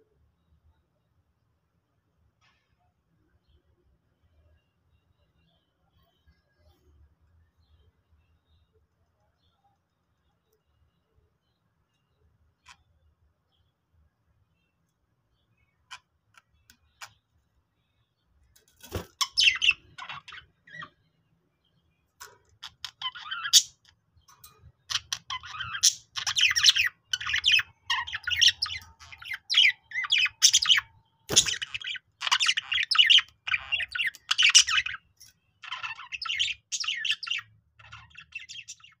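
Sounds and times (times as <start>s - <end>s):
budgerigars chirping and warbling: 18.8s - 21.0s, 22.2s - 24.0s, 24.8s - 39.0s.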